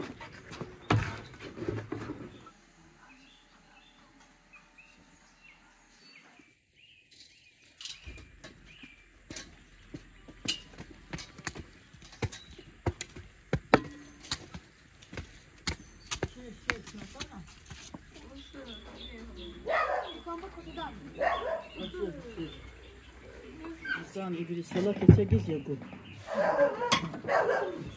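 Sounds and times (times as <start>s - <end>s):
small birds chirping: 0.0s - 27.9s
sharp taps and knocks: 9.3s - 18.0s.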